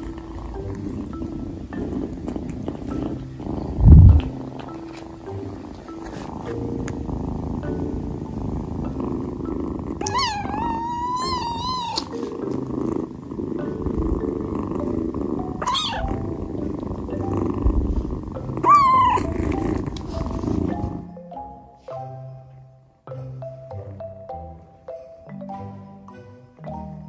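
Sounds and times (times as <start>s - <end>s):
kitten purring: 0.0s - 21.6s
kitten mewing: 10.0s - 12.3s, 15.6s - 16.3s, 17.7s - 20.0s.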